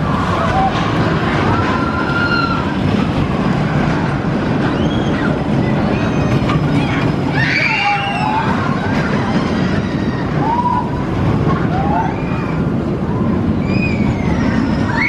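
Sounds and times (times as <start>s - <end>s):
roller coaster train rumbling on track: 0.0s - 15.0s
riders screaming: 0.3s - 2.8s, 7.3s - 12.8s.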